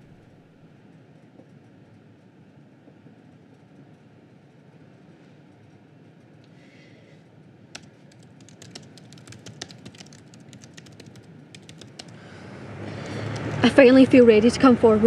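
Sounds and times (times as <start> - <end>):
faint room hum: 0.0 - 15.0
typing on computer keyboard: 7.7 - 12.2.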